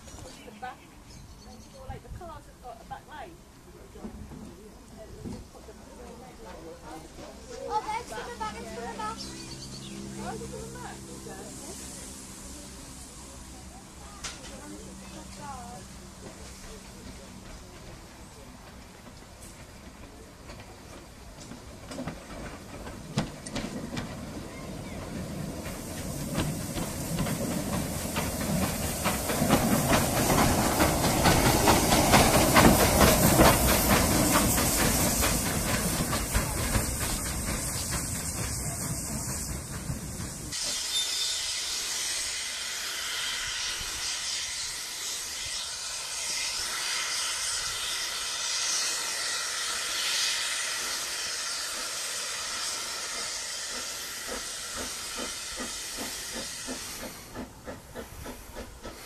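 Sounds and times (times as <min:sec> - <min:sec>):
steam locomotive passing: 0:00.0 - 0:59.0
steady hiss: 0:21.4 - 0:59.0.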